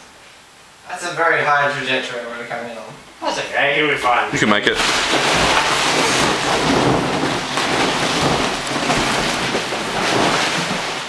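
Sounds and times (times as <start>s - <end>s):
vinyl rustling and rumbling: 3.3s - 11.0s.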